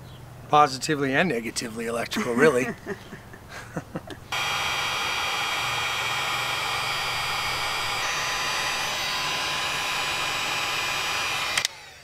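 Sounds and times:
faint fan whine: 0.0 - 12.0
heat gun blowing hiss: 4.3 - 12.0.

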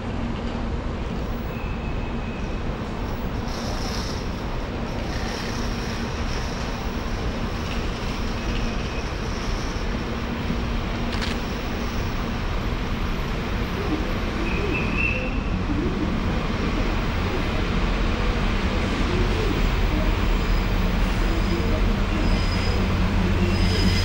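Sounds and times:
train rumble approaching: 0.0 - 24.0.

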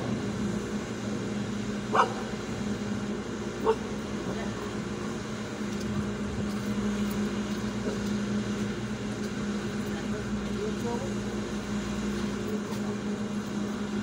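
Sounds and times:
car engine idling: 0.0 - 14.0
dog barking: 1.9 - 2.3, 3.6 - 3.8.

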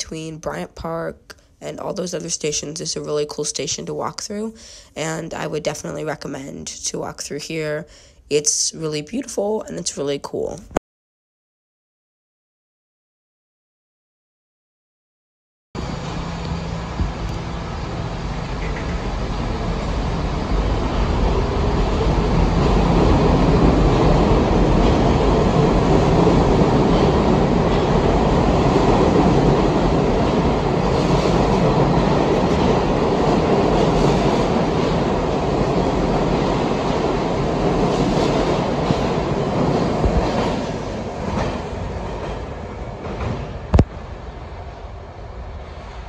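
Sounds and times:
subway train rumbling past: 15.8 - 46.0.

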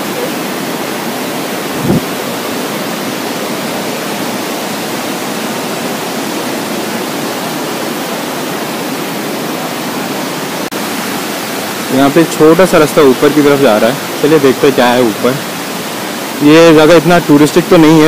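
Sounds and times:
waterfall rushing over rock: 0.0 - 18.0
brief thump: 1.8 - 2.1.

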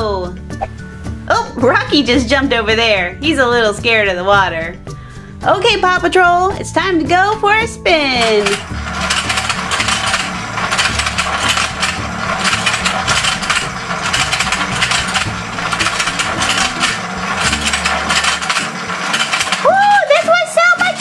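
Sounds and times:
plastic gears clicking and rattling: 8.2 - 21.0
toy motor humming: 8.2 - 21.0.

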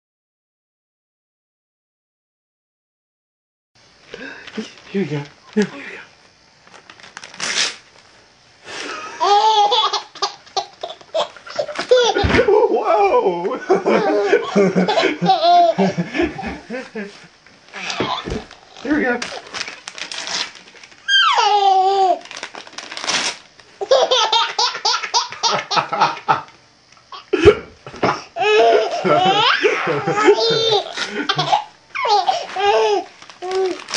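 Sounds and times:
paper tearing: 6.9 - 7.9, 17.8 - 21.1, 22.0 - 23.5, 32.3 - 33.9
baby laughing: 9.2 - 12.5, 13.8 - 16.7, 21.1 - 22.2, 23.8 - 26.3, 28.0 - 33.8.

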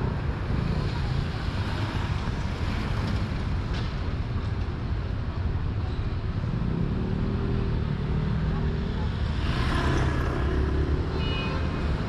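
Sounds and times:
traffic rumble and hiss: 0.0 - 12.0
passers-by: 6.2 - 12.0.

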